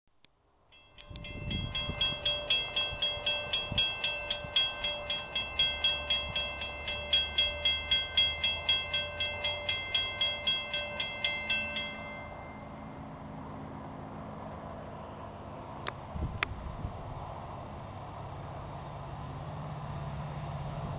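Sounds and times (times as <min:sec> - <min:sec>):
railroad crossing bell ringing: 0:00.7 - 0:13.4.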